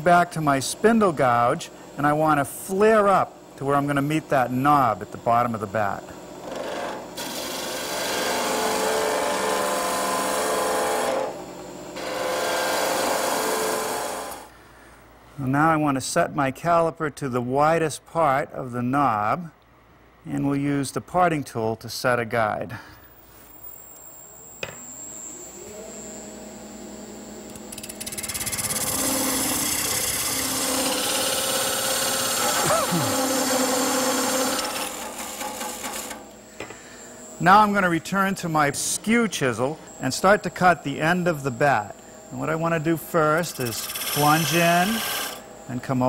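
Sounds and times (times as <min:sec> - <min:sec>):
lathe hum: 0:03.7 - 0:14.5, 0:23.6 - 0:45.7
gouge cutting spinning wood: 0:12.0 - 0:14.4, 0:27.7 - 0:36.3, 0:43.3 - 0:45.4.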